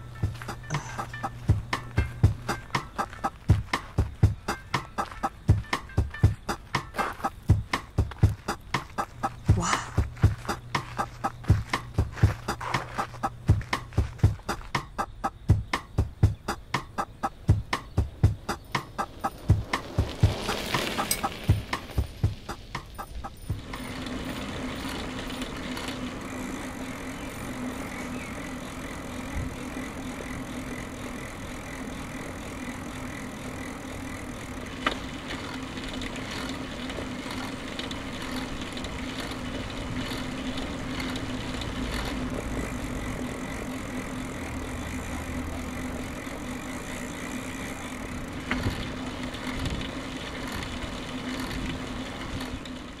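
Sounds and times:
low hum: 0.0 - 52.9
bicycle rolling on pavement: 0.0 - 53.0.

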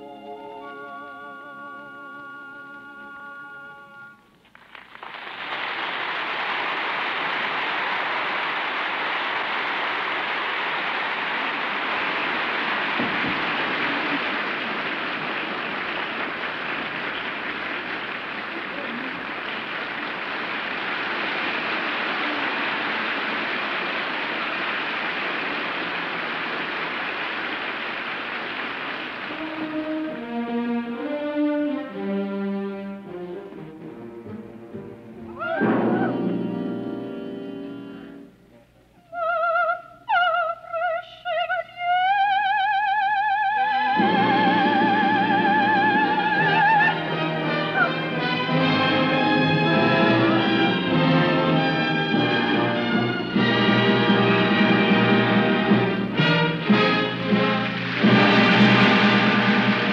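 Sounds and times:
orchestral brass holding notes: 0.0 - 4.2, 29.3 - 34.6, 44.0 - 59.9
audience applause: 4.4 - 31.1, 43.8 - 59.9.

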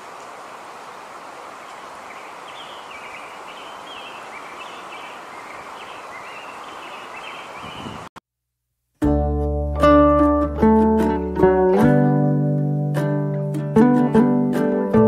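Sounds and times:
small bird chirping: 1.6 - 8.1.

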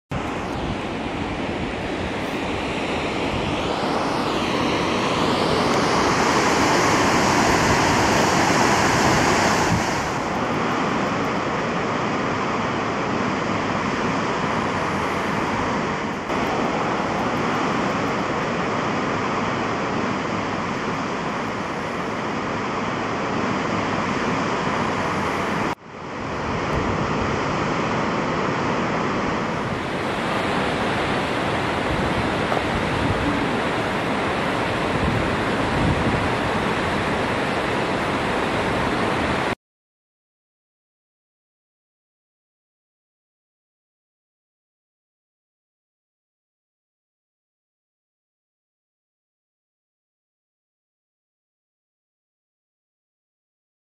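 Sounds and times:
waterfall rushing: 0.2 - 39.6.

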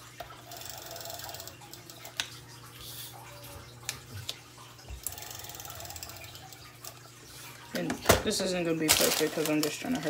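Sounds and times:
aquarium filter water trickling: 0.0 - 10.0.

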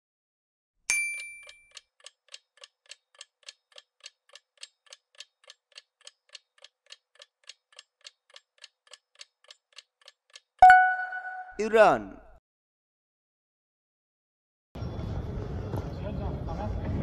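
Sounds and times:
countdown timer ticking: 0.9 - 12.0.

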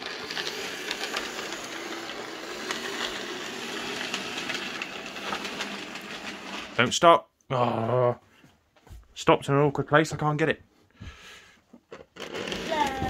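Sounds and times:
model train motor whirring: 0.0 - 6.8, 12.2 - 13.0
wheels clicking over track: 0.0 - 6.8, 12.2 - 13.0.

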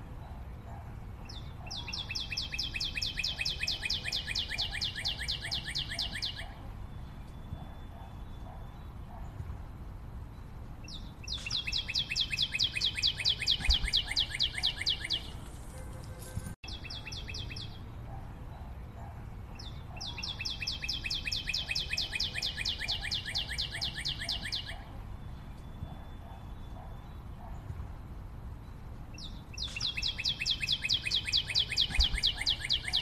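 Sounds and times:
cockatiel chirping: 11.4 - 15.3.

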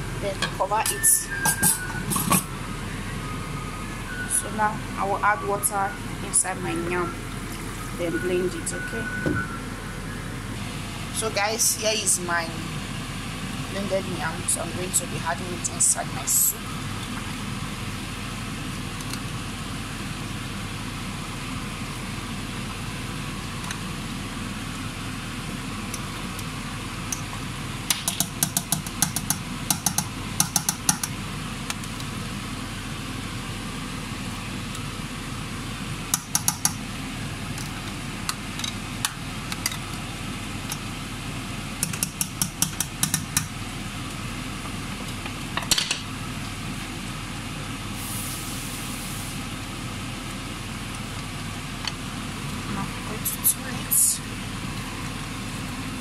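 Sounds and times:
steady background hum: 0.0 - 56.0
utensil tapping a steel pot: 28.0 - 31.1.

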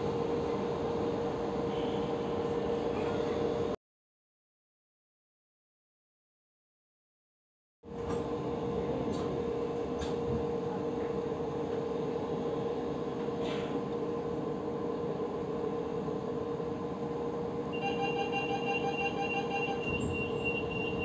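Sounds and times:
train interior hum: 7.9 - 21.0.

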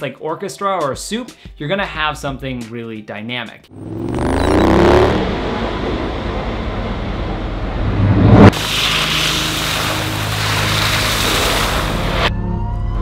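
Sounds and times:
rising swell: 3.7 - 8.5
traffic-like rumble: 3.8 - 8.5.

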